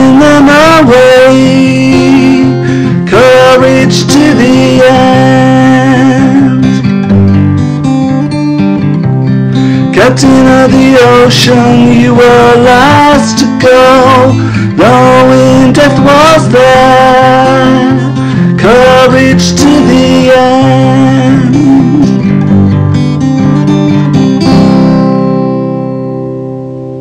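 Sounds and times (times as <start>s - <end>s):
person singing: 0.0s - 7.1s, 9.6s - 22.5s
acoustic guitar: 0.0s - 27.0s.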